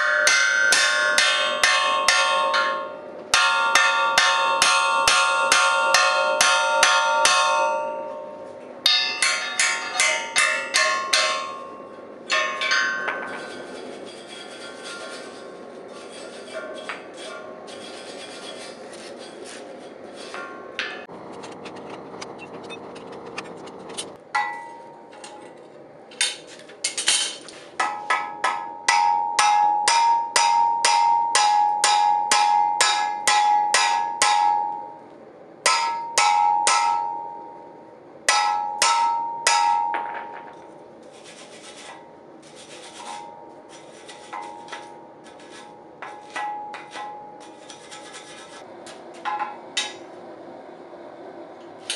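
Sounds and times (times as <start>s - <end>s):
hammer ringing on anvil: 0.0s - 13.7s, 24.3s - 25.1s, 27.8s - 35.0s, 35.7s - 37.7s, 38.3s - 40.6s, 44.3s - 47.6s
wire brush scrubbing metal: 12.3s - 21.8s, 41.0s - 50.0s.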